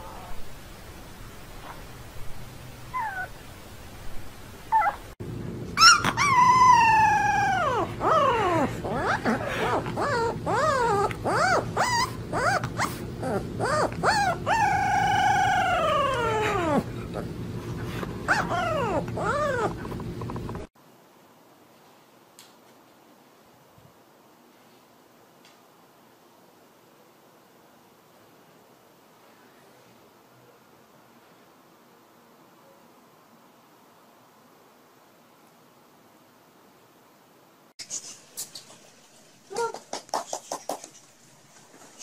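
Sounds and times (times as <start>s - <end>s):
puppy howling: 2.9s - 3.4s, 4.7s - 5.1s, 5.8s - 20.4s
puppy yips and whines: 2.9s - 3.4s, 4.7s - 5.0s, 5.8s - 16.9s, 18.2s - 20.0s
newborn puppy squeaks: 5.8s - 9.4s, 10.0s - 13.0s.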